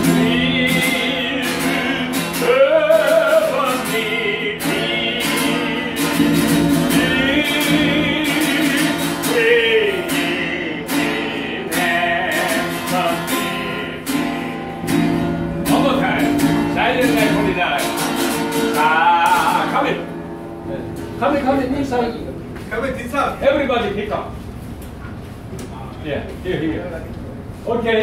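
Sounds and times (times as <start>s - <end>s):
person singing: 0.0s - 14.5s, 18.6s - 19.9s
strummed acoustic guitar: 0.0s - 23.7s.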